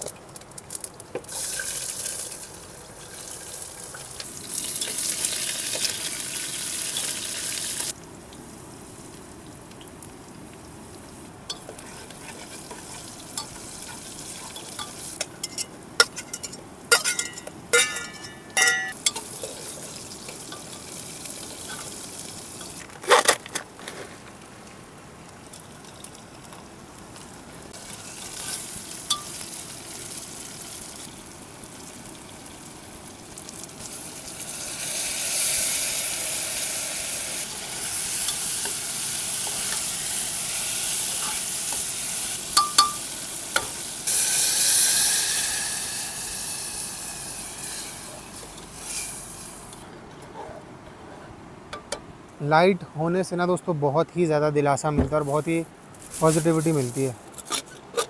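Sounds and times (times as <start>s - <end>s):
oil sizzling in a pot: 0.0s - 22.9s, 25.3s - 49.8s
metal spoon clinking on pot: 12.7s - 19.3s, 42.6s - 43.7s.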